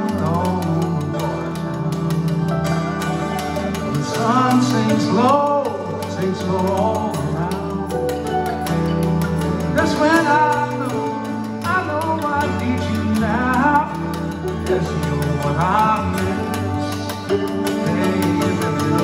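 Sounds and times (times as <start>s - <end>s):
mandolin playing: 0.0s - 19.0s
mountain dulcimer: 0.0s - 19.0s.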